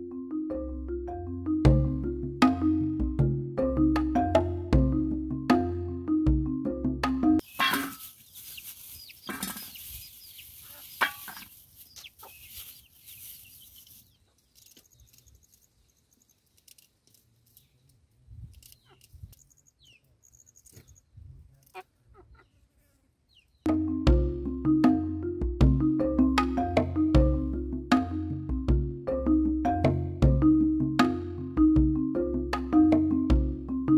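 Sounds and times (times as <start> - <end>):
chicken clucking: 7.4 - 14.4, 21.5 - 23.5.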